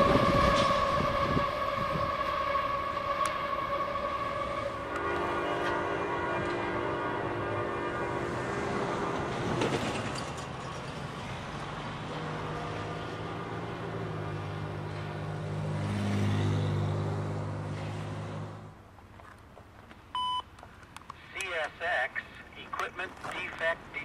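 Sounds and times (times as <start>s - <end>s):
locomotive horn blast: 0.0s - 9.8s
diesel locomotive engine drone: 0.0s - 19.1s.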